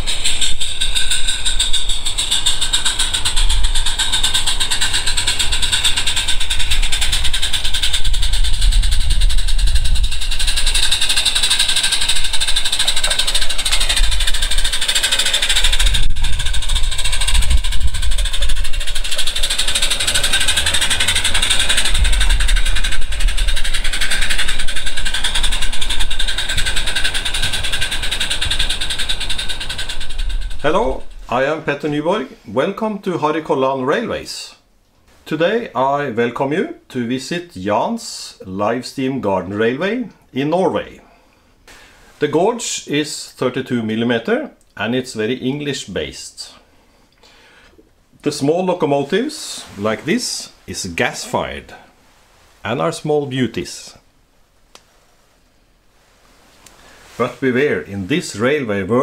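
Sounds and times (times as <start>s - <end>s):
drone propellers whirring: 0.0s - 31.3s
low rumble: 0.0s - 32.1s.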